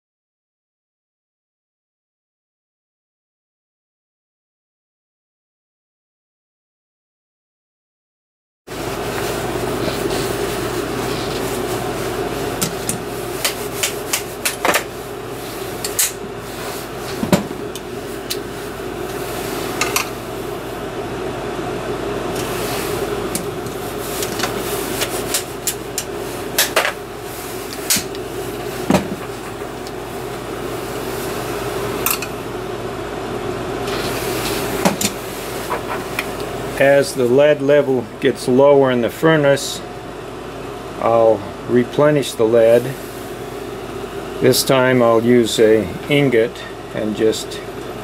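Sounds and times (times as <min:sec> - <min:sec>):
electric fan humming: 0:08.7 - 0:48.0.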